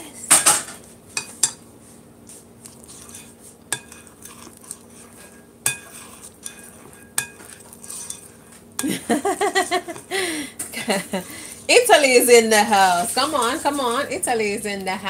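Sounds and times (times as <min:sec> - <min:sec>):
spoon scraping batter: 0:01.2 - 0:08.7, 0:09.6 - 0:10.1, 0:11.2 - 0:14.5
spoon clinking on glass bowl: 0:05.6 - 0:08.9.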